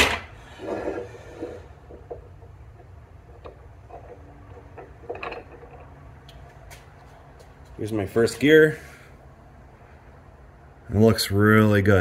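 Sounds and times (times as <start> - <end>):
metal housing scraping on workbench: 0.0 - 2.3
steady low hum: 0.0 - 12.0.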